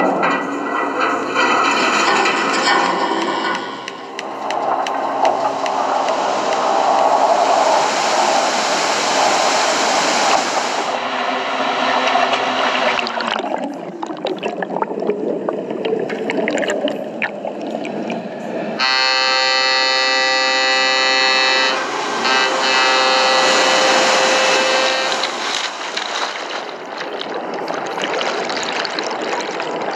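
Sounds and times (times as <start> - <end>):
seawater rushing and churning: 1.6 - 29.9
muffled underwater crackling: 11.8 - 18.7, 24.3 - 29.9.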